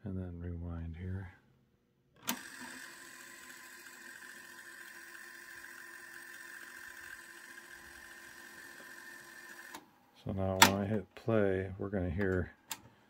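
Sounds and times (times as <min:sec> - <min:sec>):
cassette deck rewinding whir: 0:02.2 - 0:09.9.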